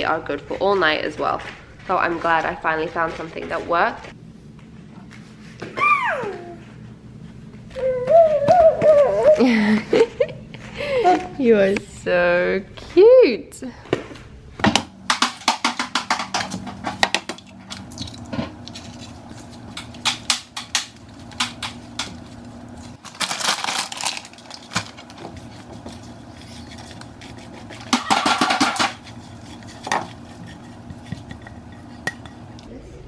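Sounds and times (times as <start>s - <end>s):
spatula scraping in pan: 25.1s - 32.6s.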